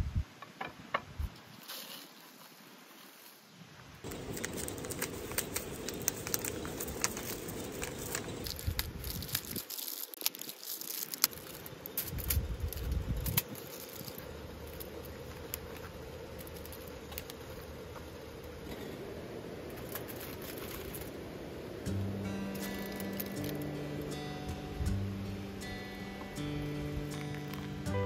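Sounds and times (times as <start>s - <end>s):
foil and packaging crinkling: 4.0s - 17.8s, 19.7s - 21.2s, 22.4s - 24.2s.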